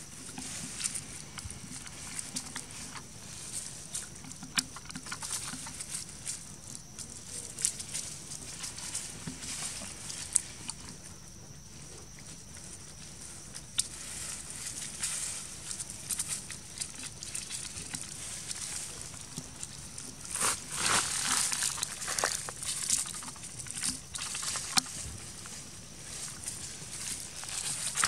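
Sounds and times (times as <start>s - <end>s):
dry leaves crackling and rustling: 14.1s - 28.0s.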